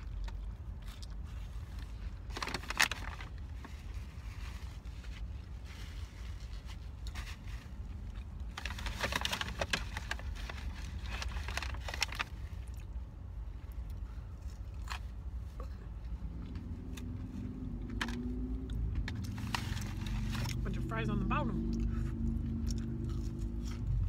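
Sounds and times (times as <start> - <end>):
crunching and chewing lettuce: 0.0 - 21.0, 21.6 - 24.0
steady low rumble: 9.5 - 24.0.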